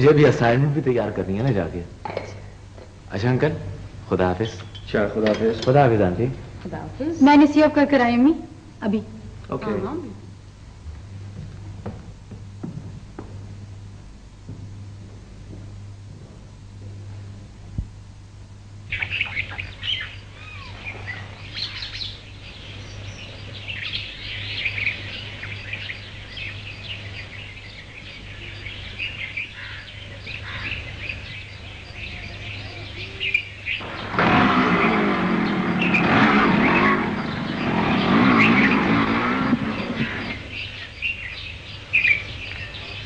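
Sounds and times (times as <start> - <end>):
birds chirping: 0.0 - 9.0, 18.1 - 43.0
small motorcycle engine revving: 31.9 - 43.0.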